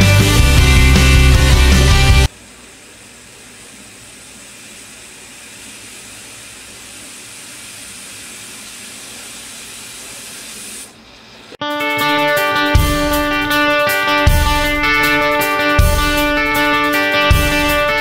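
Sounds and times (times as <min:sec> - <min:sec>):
pressure cooker steam hiss: 0:04.0 - 0:11.0.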